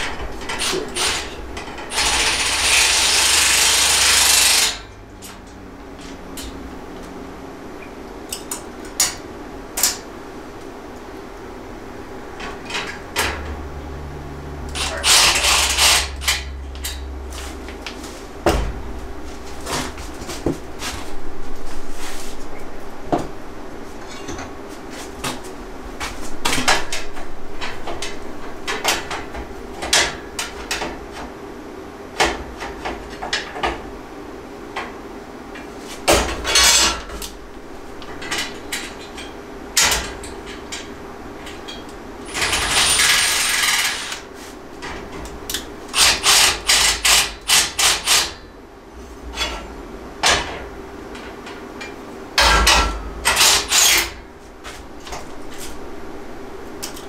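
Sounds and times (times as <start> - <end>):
cordless drill driving screws: 1.9 - 4.8.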